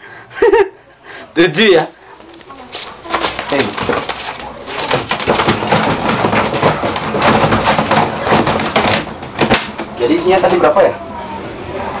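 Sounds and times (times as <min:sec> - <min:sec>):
plastic boxes rattling: 0:02.2 - 0:10.8.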